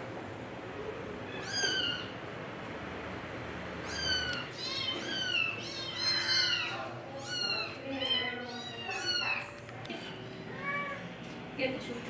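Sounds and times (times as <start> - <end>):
kittens mewing: 1.3 - 2.2, 3.8 - 9.5.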